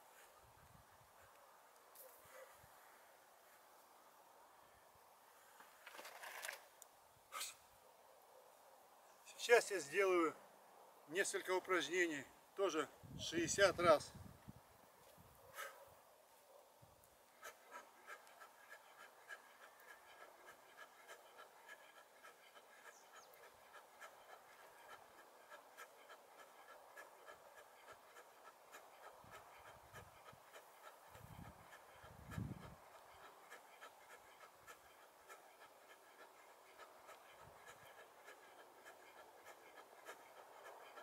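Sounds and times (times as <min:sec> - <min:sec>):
wind buffeting microphone: 0:13.0 - 0:14.6, 0:31.1 - 0:32.8.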